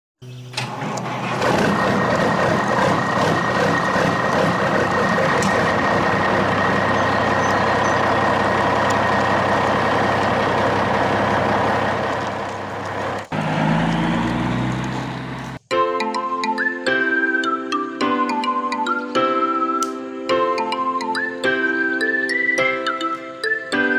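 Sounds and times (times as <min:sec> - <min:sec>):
truck engine running: 0:00.4 - 0:15.7.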